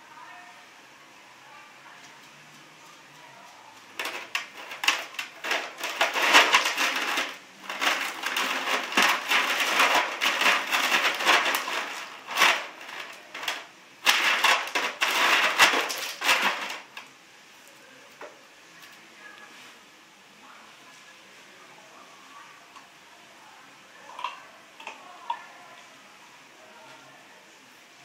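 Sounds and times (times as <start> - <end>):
ice cubes clattering in plastic tub: 4.0 - 17.0.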